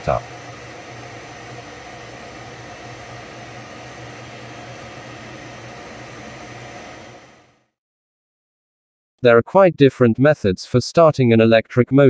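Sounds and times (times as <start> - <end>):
low electrical hum: 0.0 - 7.5
fan whir: 0.0 - 7.7.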